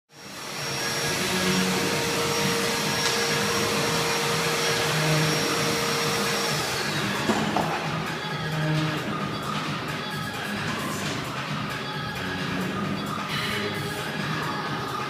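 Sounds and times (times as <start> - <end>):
blower motor whirring: 0.1 - 15.0
high descending whine: 0.2 - 9.2.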